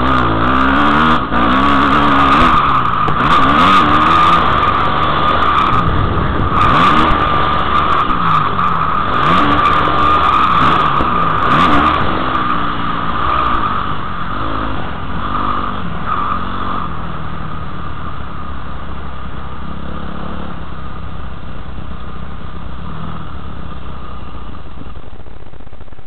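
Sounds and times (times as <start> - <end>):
motocross bike engine revving: 0.0 - 18.0.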